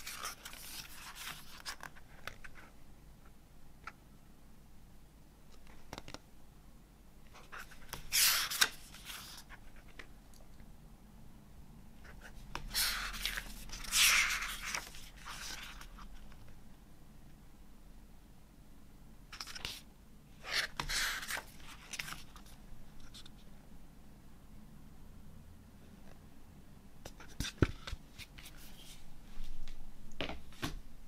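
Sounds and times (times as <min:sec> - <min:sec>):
paper pages turning: 0:00.0 - 0:02.6, 0:07.4 - 0:10.1, 0:12.5 - 0:16.4, 0:19.4 - 0:19.8, 0:20.5 - 0:23.3.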